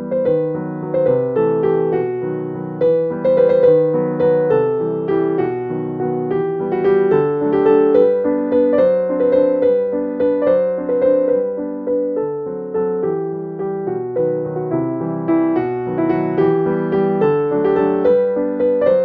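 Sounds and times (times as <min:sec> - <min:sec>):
gentle piano melody: 0:00.0 - 0:19.0.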